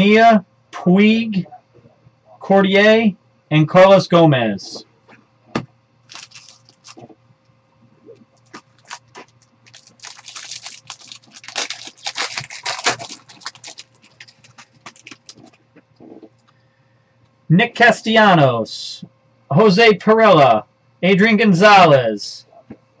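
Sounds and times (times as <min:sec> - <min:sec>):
cards being shuffled: 0:06.1 - 0:07.1, 0:08.4 - 0:15.6
wrapper tearing and crinkling: 0:06.1 - 0:07.1, 0:08.4 - 0:15.6.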